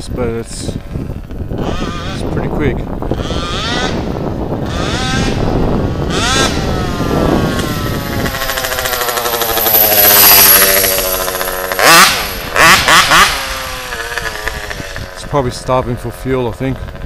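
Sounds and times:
rc car engine passing: 0.0 - 17.0
short sharp engine revs: 0.8 - 17.0.

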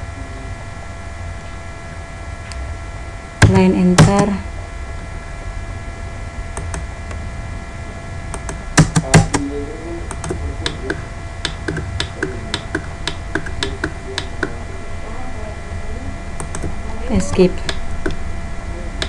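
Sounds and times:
electrical hum: 0.0 - 19.0
keyboard typing: 3.4 - 4.4, 6.6 - 6.9, 8.3 - 9.5, 10.1 - 14.6, 16.4 - 18.2.

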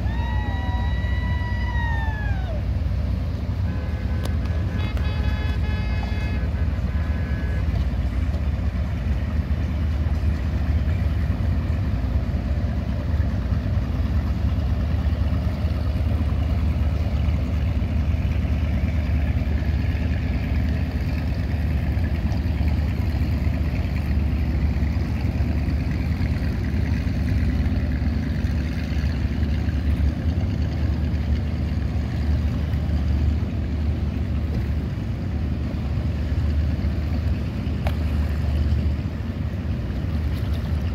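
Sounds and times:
motorboat engines droning: 0.0 - 40.9
water noise: 0.0 - 40.9
wind: 0.0 - 40.9
held horn tone: 3.5 - 8.1.

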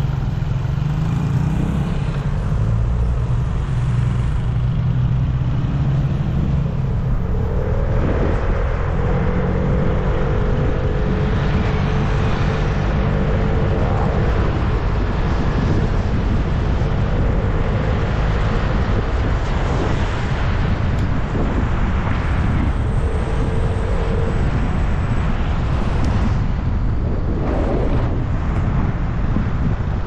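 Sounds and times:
wind rumble on microphone: 0.0 - 30.0.

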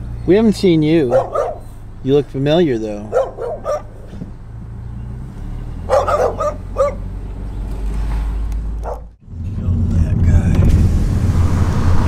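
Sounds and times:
dog barking: 1.1 - 1.7, 3.1 - 4.0, 5.9 - 7.0, 8.8 - 9.1.

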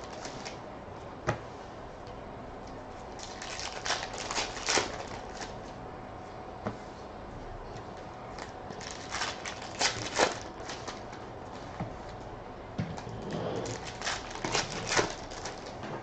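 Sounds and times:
plastic wrapper crinkling: 3.1 - 5.6, 8.4 - 11.1, 13.6 - 15.8.

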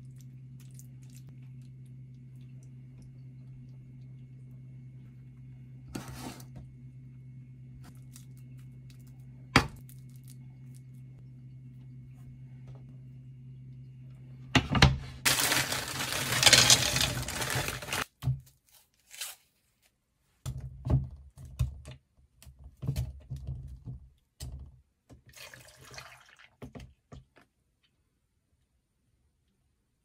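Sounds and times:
faint low hum: 0.0 - 18.0
knocks and handling sounds: 14.6 - 18.8
milk pouring into blender jug: 25.3 - 26.8.

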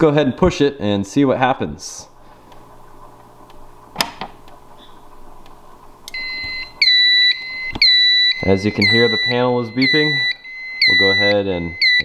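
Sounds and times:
alarm panel beeping: 6.1 - 12.0.

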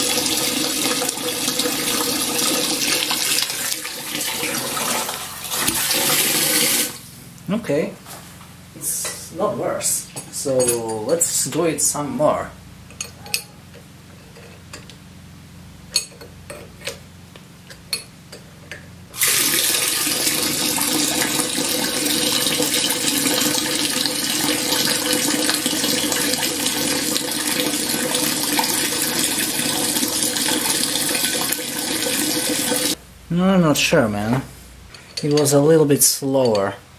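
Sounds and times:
water rushing through pump: 0.0 - 7.0, 19.2 - 33.0.

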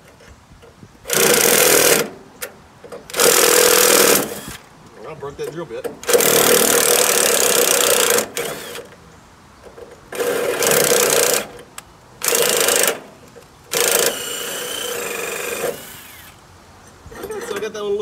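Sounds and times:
cordless drill drilling metal: 1.1 - 2.1, 3.1 - 4.6, 6.0 - 8.9, 12.2 - 13.1, 13.7 - 16.4.

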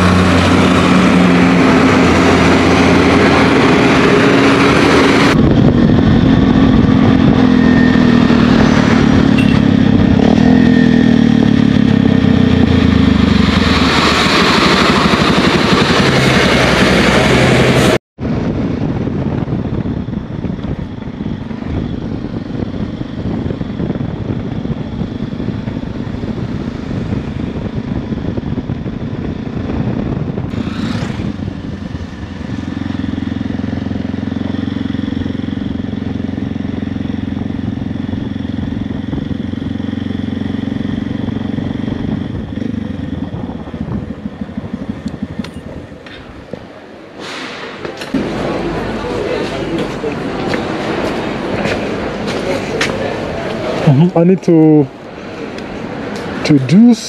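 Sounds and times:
motorcycle engine running: 0.0 - 47.0
wind and road noise: 0.0 - 57.0
brief whoosh: 47.1 - 48.4.

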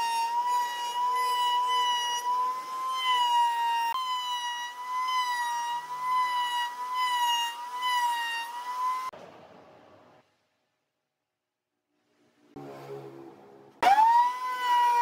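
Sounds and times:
router whining: 0.0 - 9.1, 13.8 - 15.0.

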